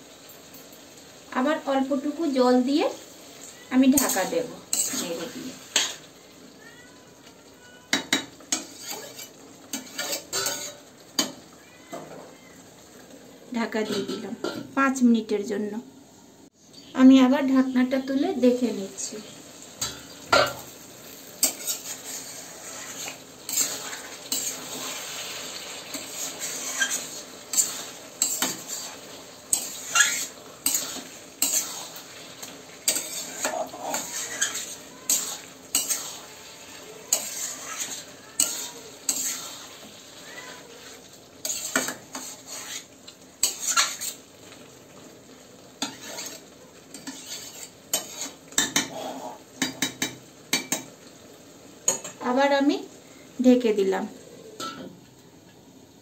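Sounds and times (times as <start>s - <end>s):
meat sizzling: 0.0s - 56.0s
metal spatula scraping a pan: 3.8s - 6.1s, 7.9s - 11.4s, 19.8s - 44.6s, 45.8s - 50.9s.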